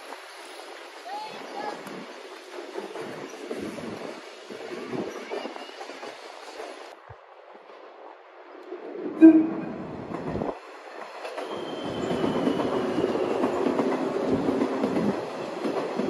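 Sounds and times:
train running past: 0:00.0 - 0:07.0, 0:09.1 - 0:16.0
train air horn blast: 0:09.2 - 0:10.0.

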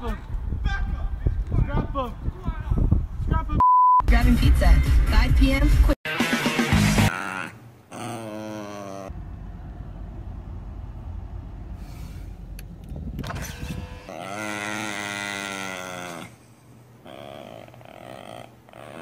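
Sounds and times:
car cabin rumble: 0:09.1 - 0:14.0.

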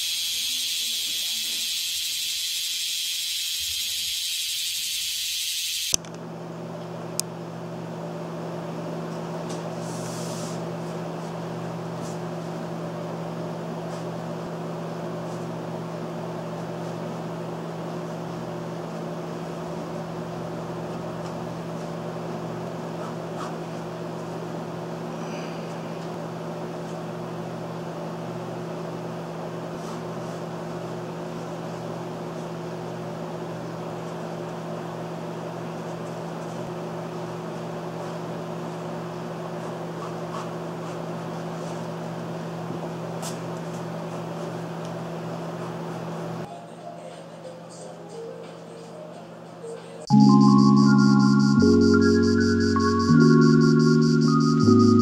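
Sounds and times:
cicadas buzzing chorus: 0:00.0 - 0:05.9.

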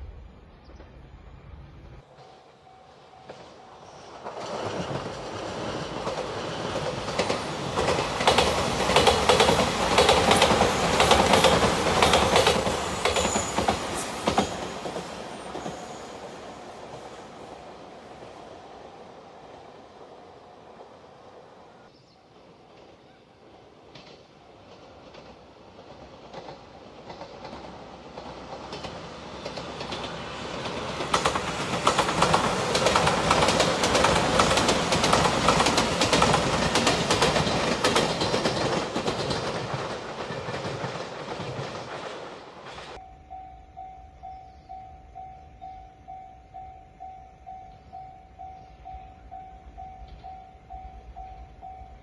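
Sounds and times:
express train passing: 0:00.0 - 0:52.0
level-crossing warning bell: 0:02.5 - 0:04.2, 0:43.0 - 0:52.0
wheels clattering over rail joints: 0:23.9 - 0:43.0.

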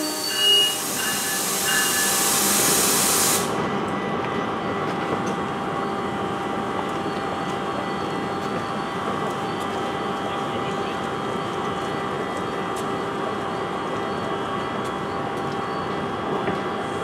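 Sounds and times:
compressed air hiss from train: 0:00.0 - 0:03.6
train hum with held tones: 0:00.0 - 0:17.0.

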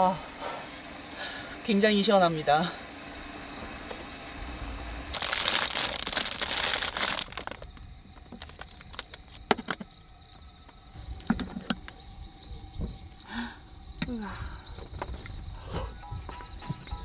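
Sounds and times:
plastic bag crinkling: 0:05.1 - 0:09.4.

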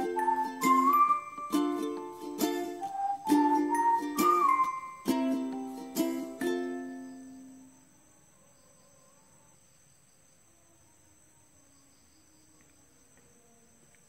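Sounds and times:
background music: 0:00.0 - 0:07.2
crickets trilling: 0:00.0 - 0:14.0.

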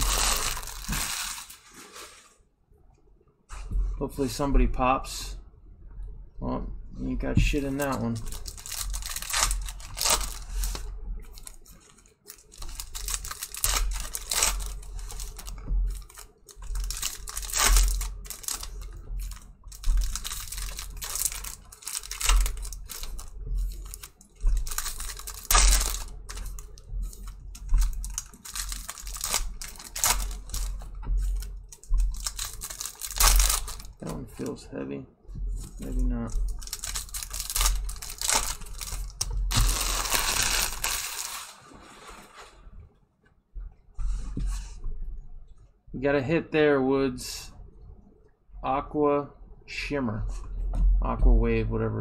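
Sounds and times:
foil wrappers crinkling and tearing: 0:00.0 - 0:02.4, 0:07.5 - 0:34.6, 0:35.6 - 0:42.5
cards shuffling: 0:11.4 - 0:34.5, 0:35.6 - 0:41.6.

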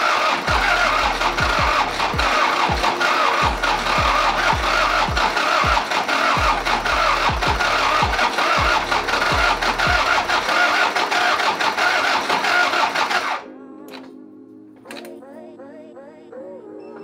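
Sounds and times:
diesel engine clatter: 0:00.0 - 0:13.3
deep thumping beat: 0:00.5 - 0:10.4.

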